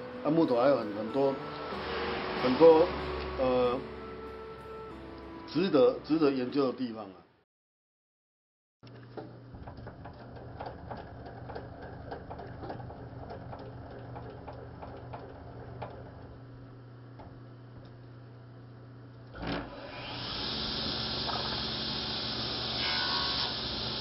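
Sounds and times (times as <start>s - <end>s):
table saw motor whirring: 19.4s - 24.0s.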